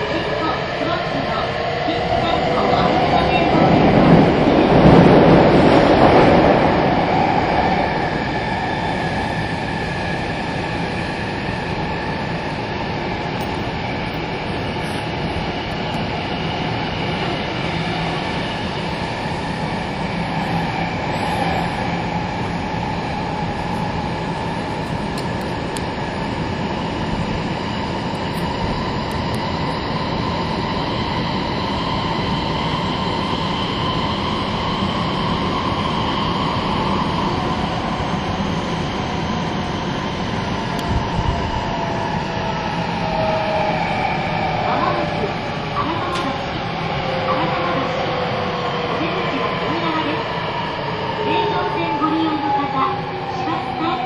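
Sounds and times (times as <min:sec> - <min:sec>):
subway train wheels rumbling: 0:00.0 - 0:54.0.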